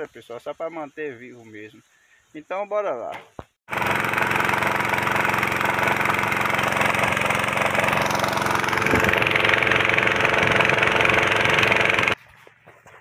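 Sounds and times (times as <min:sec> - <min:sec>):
motor pump engine running: 0:03.7 - 0:12.2.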